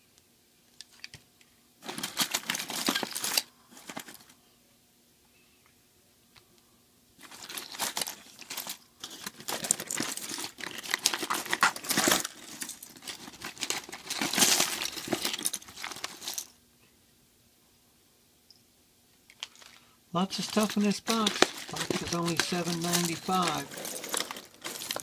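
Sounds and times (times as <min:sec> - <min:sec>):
electronic parts rustling in a box: 0:01.8 - 0:04.4, 0:07.2 - 0:16.5, 0:19.4 - 0:25.0.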